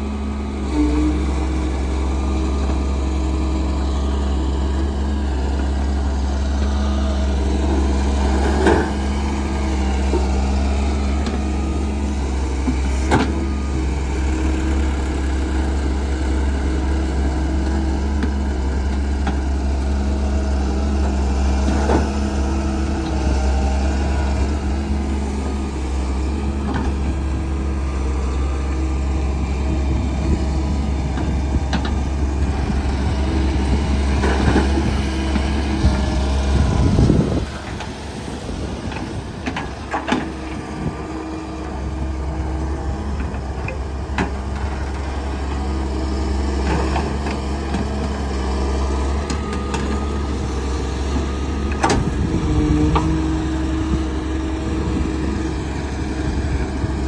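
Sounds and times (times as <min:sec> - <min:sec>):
excavator diesel engine under load: 0:00.0 - 0:57.0.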